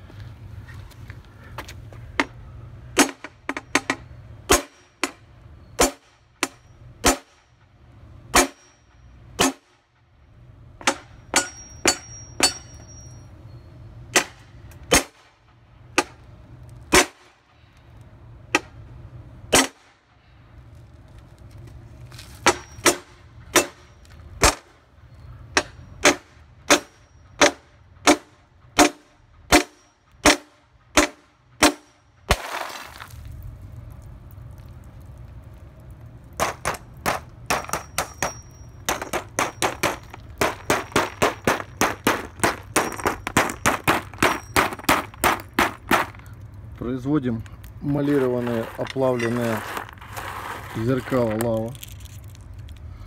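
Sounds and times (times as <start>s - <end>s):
hammer striking glass: 10.8s - 13.2s, 36.4s - 46.1s.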